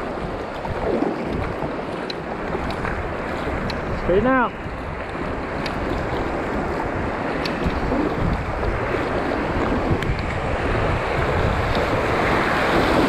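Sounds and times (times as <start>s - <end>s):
river water rushing: 0.0s - 13.0s
wind noise on microphone: 0.0s - 13.0s.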